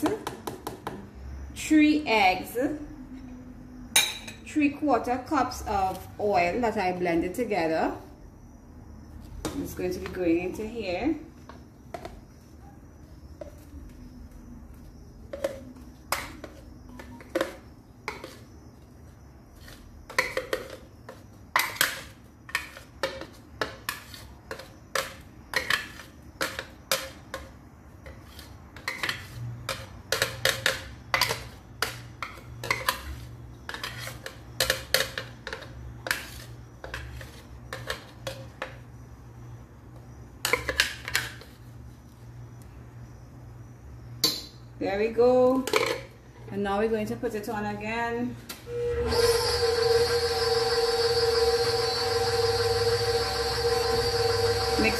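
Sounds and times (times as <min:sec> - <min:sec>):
utensils knocking on metal bowl: 0:28.8 - 0:33.1.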